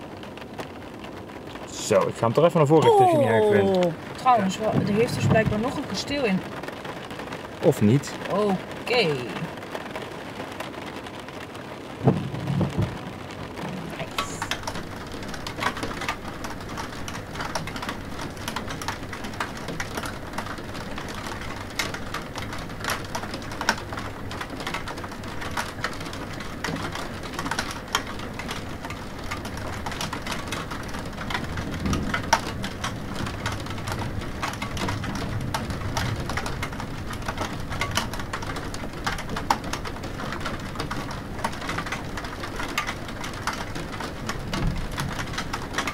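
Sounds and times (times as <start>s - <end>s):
rain on a hard surface: 0.0s - 45.9s
low rolls of thunder: 3.8s - 6.7s, 11.8s - 19.4s, 29.3s - 39.0s, 44.2s - 45.9s.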